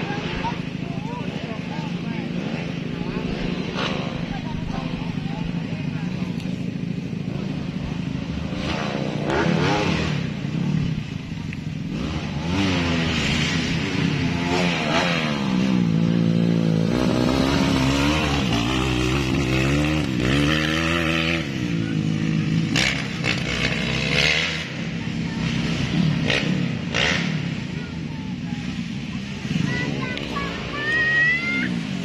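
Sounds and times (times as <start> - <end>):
motocross bike engines revving: 0.0 - 32.0.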